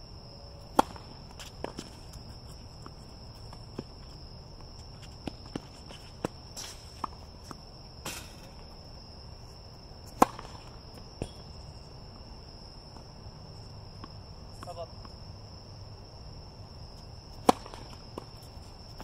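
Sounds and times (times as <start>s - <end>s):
crickets trilling: 0.0s - 19.0s
tennis ball and racket hits: 0.6s - 2.9s, 10.0s - 11.5s, 17.3s - 19.0s.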